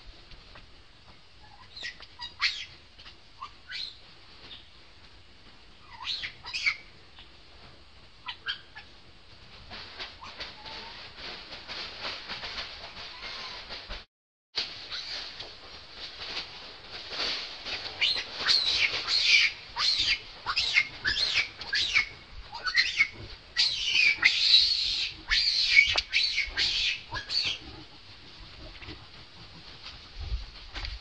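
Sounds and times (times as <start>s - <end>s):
monkey screeching cries: 18.0s - 27.6s.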